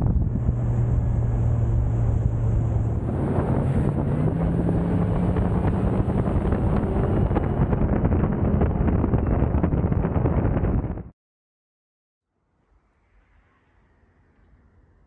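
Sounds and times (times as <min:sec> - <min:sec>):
boat engine running: 0:00.0 - 0:11.1
wind buffeting microphone: 0:00.0 - 0:11.1.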